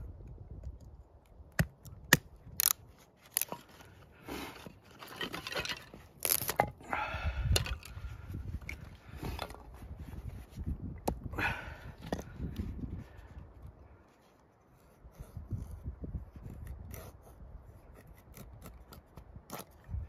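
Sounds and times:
wood cracking and snapping: 1.4 - 3.7, 5.0 - 6.8
knife scraping wood: 2.6 - 6.8, 14.2 - 20.0.

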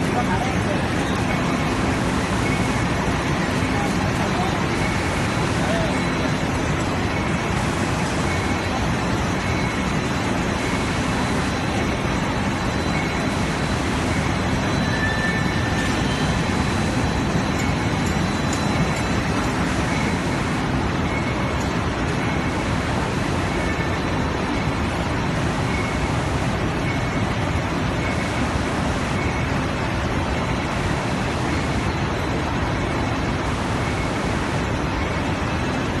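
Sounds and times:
faint high whine: 0.0 - 24.9
machine whirring: 0.0 - 36.0.

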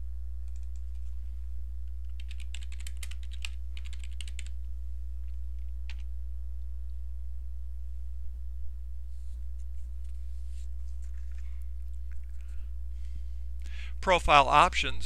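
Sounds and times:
steady low hum: 0.0 - 15.0
computer keyboard typing: 0.4 - 1.1, 2.0 - 4.6.

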